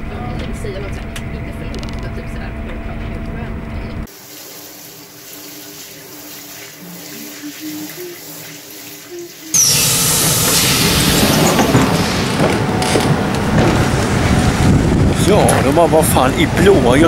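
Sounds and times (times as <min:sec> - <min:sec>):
shower water running: 0:04.0 - 0:12.6
loud steady rushing noise: 0:09.6 - 0:17.0.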